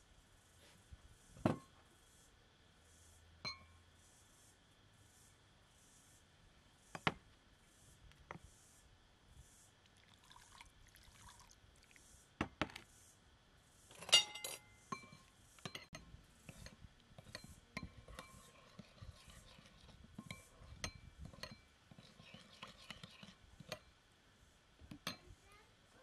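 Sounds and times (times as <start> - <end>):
glassware and dishes clinking: 14.0 - 16.0.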